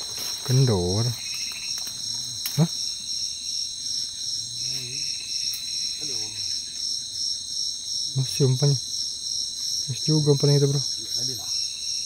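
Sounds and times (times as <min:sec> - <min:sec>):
night insects trilling: 0:00.0 - 0:12.0.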